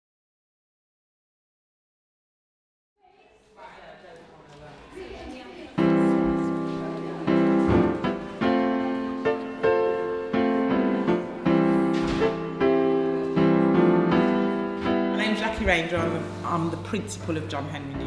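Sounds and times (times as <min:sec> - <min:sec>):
slow piano music: 0:05.7 - 0:18.0.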